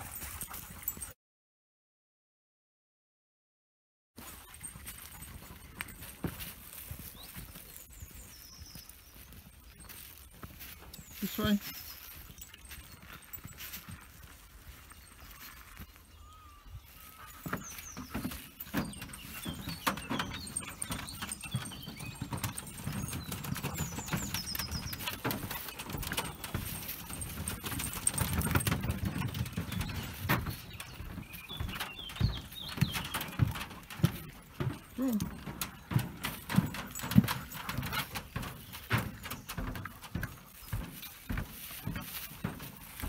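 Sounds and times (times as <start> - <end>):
footsteps on wooden boardwalk: 4.2 - 43.0
bird chirps: 6.7 - 33.5.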